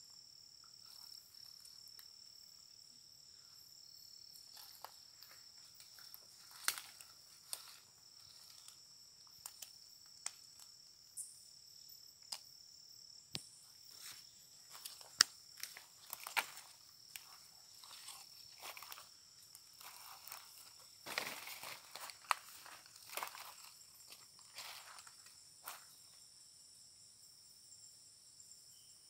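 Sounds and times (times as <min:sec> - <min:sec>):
insects droning: 0:00.0 - 0:29.0
footsteps on dry leaves: 0:04.6 - 0:08.7, 0:13.9 - 0:25.9.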